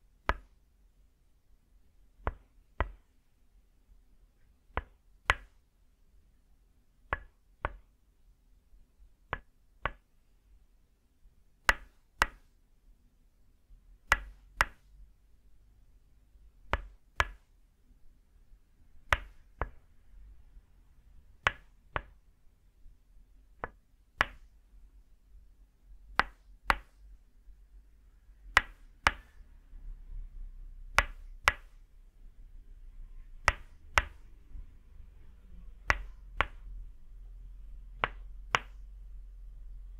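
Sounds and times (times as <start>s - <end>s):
wooden mallet striking wooden peg: 16.7s - 17.5s, 19.1s - 19.8s, 28.5s - 29.4s, 30.9s - 31.8s, 33.4s - 34.3s, 35.8s - 36.7s, 37.9s - 38.8s.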